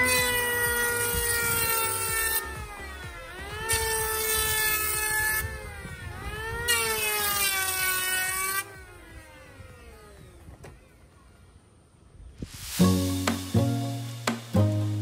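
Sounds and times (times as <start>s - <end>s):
electric planer whining: 0.0s - 11.5s.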